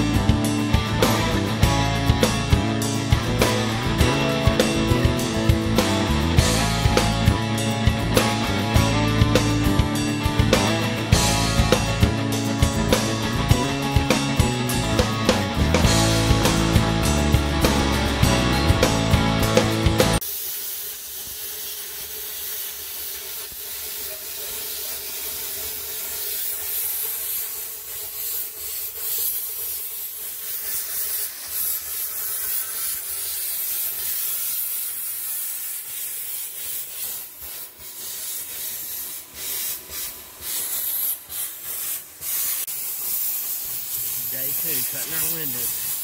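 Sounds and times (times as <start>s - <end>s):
plasma cutter hissing: 19.4s - 46.0s.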